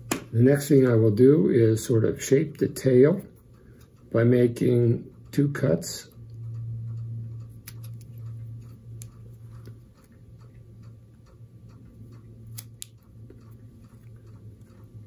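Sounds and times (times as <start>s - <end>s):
low hum: 0.0s - 15.0s
scissors snipping foam: 7.6s - 8.2s, 12.4s - 13.0s.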